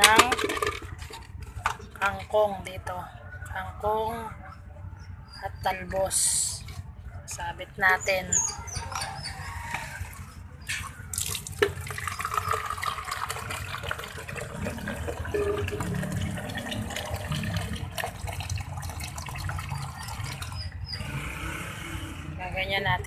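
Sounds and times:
water pouring into plastic bottle: 0:11.1 - 0:20.6.

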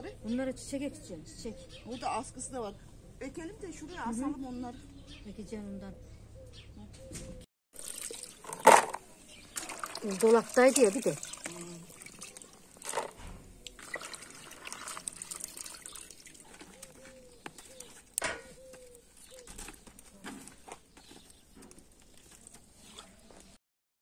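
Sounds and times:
dove cooing: 0:16.4 - 0:19.9.

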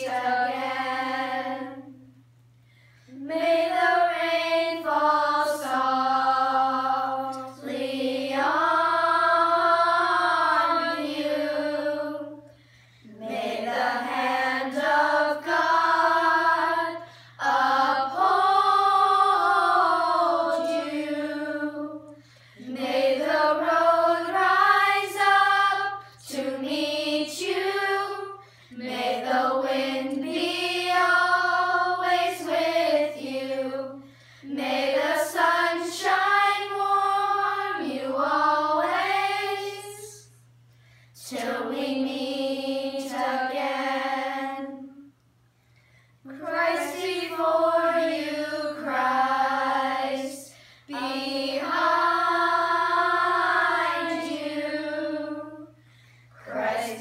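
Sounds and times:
children singing: 0:03.2 - 0:12.4, 0:13.1 - 0:40.3, 0:46.3 - 0:55.7, 0:56.4 - 0:57.0.

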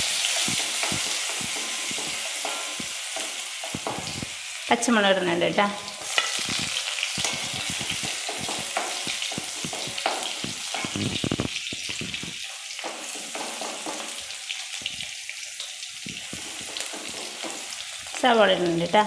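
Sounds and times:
garlic sizzling in hot oil: 0:00.0 - 0:19.0
wooden spatula scraping pan: 0:06.0 - 0:14.1.

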